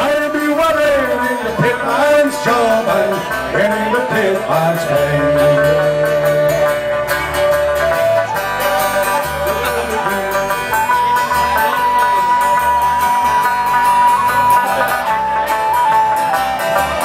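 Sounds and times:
live folk band playing: 0:00.0 - 0:17.0.

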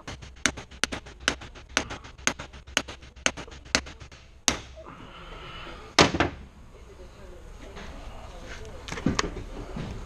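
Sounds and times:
hammer blows on metal: 0:00.0 - 0:04.8.

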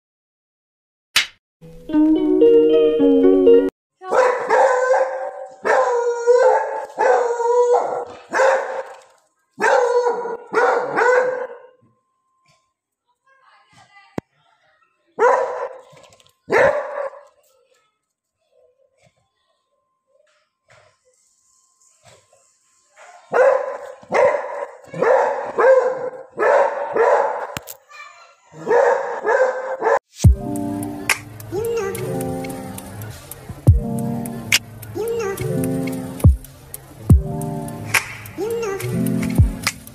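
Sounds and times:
dog barking: 0:04.1 - 0:09.0, 0:09.6 - 0:11.8, 0:15.2 - 0:15.9, 0:16.5 - 0:17.4, 0:23.0 - 0:27.6, 0:28.5 - 0:30.0
dog baying: 0:04.2 - 0:08.9, 0:09.6 - 0:11.7.

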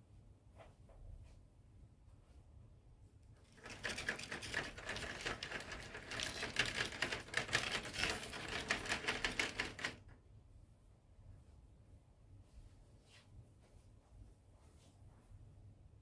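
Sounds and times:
model train rattling over track: 0:03.5 - 0:10.0.

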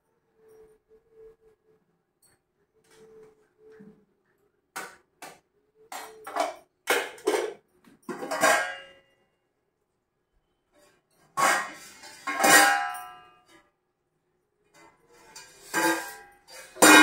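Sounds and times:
steel utensils clinking: 0:15.2 - 0:17.0.

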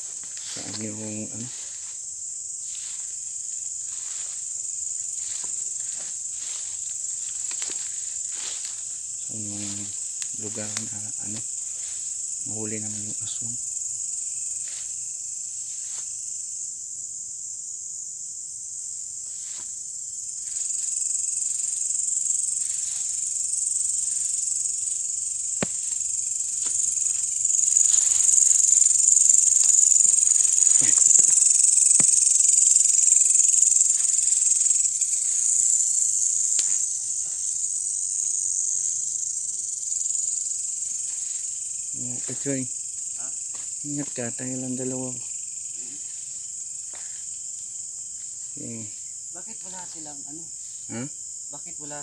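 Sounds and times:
night insects chorus: 0:00.0 - 0:52.0
snaps and rustles in undergrowth: 0:05.2 - 0:09.0, 0:09.6 - 0:12.2, 0:23.9 - 0:32.5.

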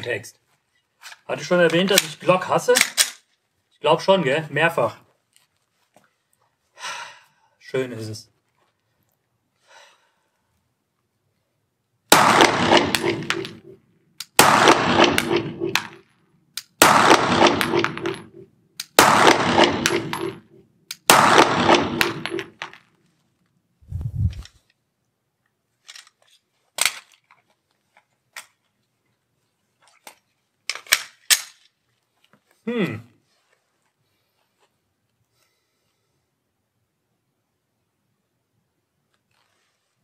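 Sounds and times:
pistol handling clicks: 0:02.8 - 0:03.3, 0:18.8 - 0:19.0, 0:30.7 - 0:31.7
pistol shots echoing indoors: 0:12.1 - 0:13.8, 0:14.4 - 0:16.0, 0:16.8 - 0:20.4, 0:21.1 - 0:22.6.

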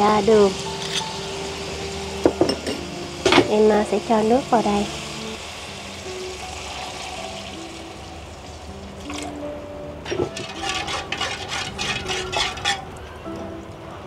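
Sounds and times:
water pouring into a wok: 0:00.0 - 0:09.4, 0:10.0 - 0:13.0
soft background music: 0:00.0 - 0:14.0
metal spoon clinking against wok: 0:10.1 - 0:12.9.

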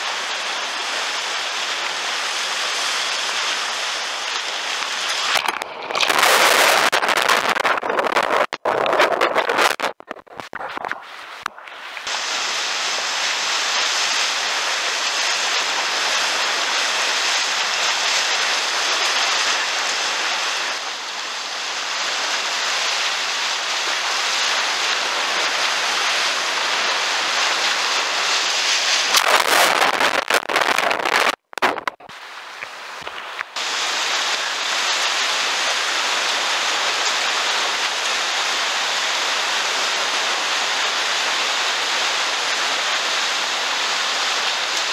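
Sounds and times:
whitewater rushing and splashing: 0:00.0 - 0:10.2, 0:11.3 - 0:44.9.

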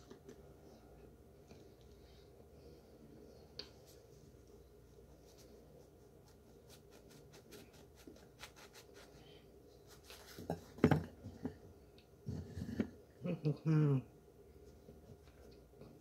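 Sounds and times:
fingers rubbing cornstarch: 0:05.2 - 0:09.3.

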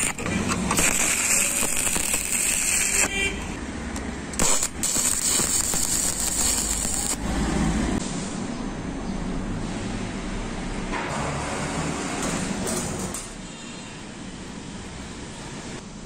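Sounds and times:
sharp crack of arc striking: 0:00.0 - 0:03.1, 0:04.4 - 0:07.3
welding arc crackling and hissing: 0:00.0 - 0:03.2, 0:04.2 - 0:08.0.

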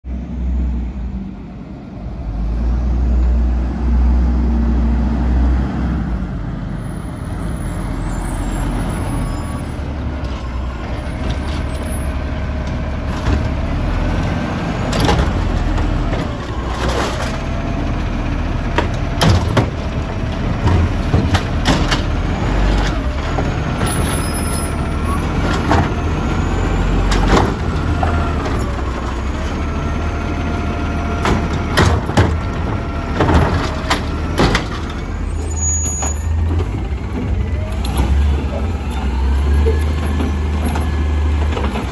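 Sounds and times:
garbage truck engine rumbling: 0:00.1 - 0:41.9
cart clanking against hopper: 0:12.7 - 0:17.6, 0:18.6 - 0:29.3, 0:31.1 - 0:41.9.

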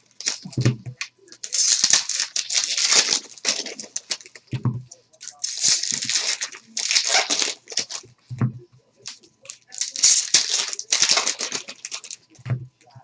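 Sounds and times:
wrappers tearing and crinkling: 0:00.0 - 0:00.6, 0:01.3 - 0:04.4, 0:05.2 - 0:08.0, 0:09.1 - 0:12.4.

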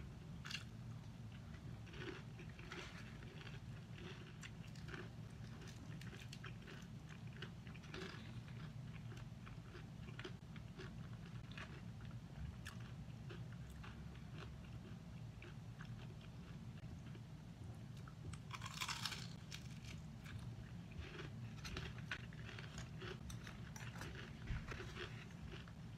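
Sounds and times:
chewing crispy fried chicken: 0:00.4 - 0:17.3, 0:18.0 - 0:25.9.

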